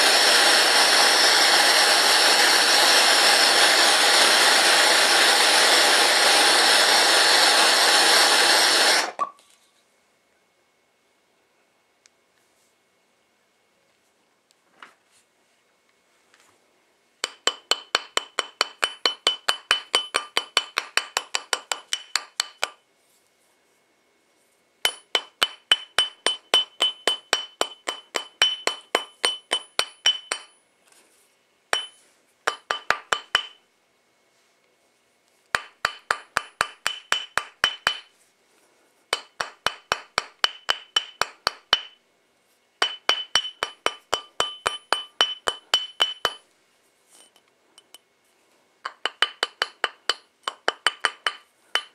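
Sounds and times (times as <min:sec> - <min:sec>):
small hammer tapping on metal: 0:17.2 - 0:22.8, 0:24.8 - 0:30.6, 0:31.7 - 0:33.6, 0:35.5 - 0:38.1, 0:39.1 - 0:42.0, 0:42.8 - 0:46.4, 0:48.8 - 0:51.9.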